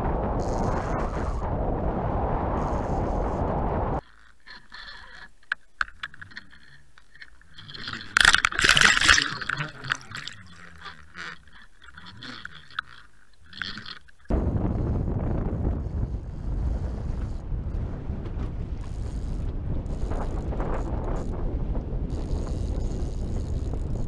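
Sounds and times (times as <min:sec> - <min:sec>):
sharp clicks: 0:04.0 - 0:14.3
water rushing and bubbling: 0:05.8 - 0:14.7.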